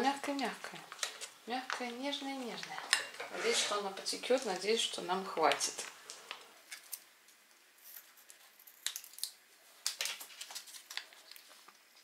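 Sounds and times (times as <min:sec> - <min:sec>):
plastic packet crinkling: 0:07.9 - 0:12.0.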